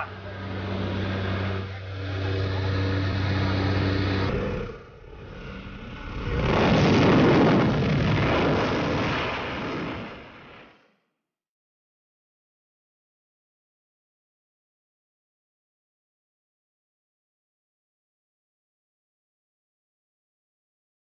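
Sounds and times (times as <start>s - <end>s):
loud rushing noise: 0.0s - 10.6s
propeller aircraft engine droning: 0.0s - 10.7s.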